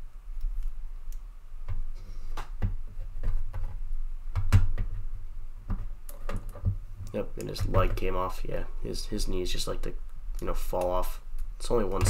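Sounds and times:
steady low hum: 5.0s - 12.0s.

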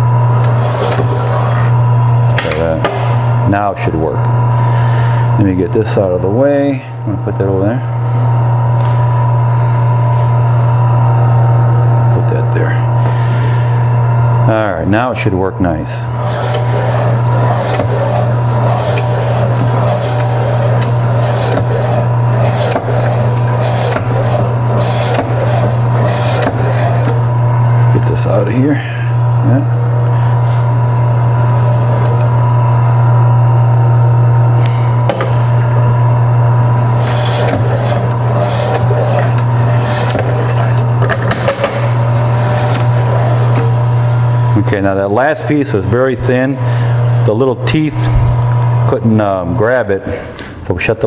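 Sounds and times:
meat slicer motor humming: 0.0s - 50.7s
slicer carriage scraping and clicking: 0.3s - 3.2s, 16.0s - 28.6s, 29.3s - 32.7s, 34.6s - 35.8s, 36.6s - 45.8s.

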